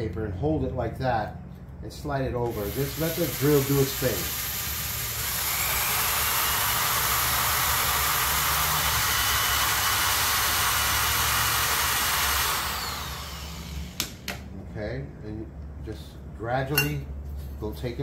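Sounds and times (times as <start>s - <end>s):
electric drill motor hum: 2.4s - 14.3s.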